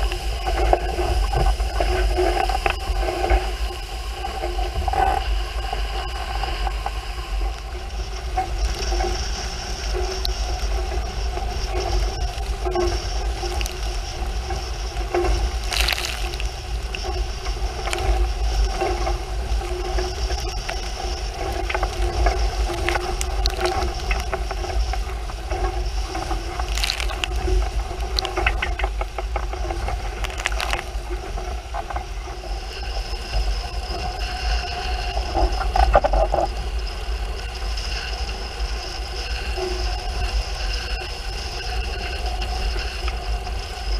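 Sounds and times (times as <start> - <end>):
steady hum: 0.0 - 43.9
water rushing along hulls: 7.2 - 32.6.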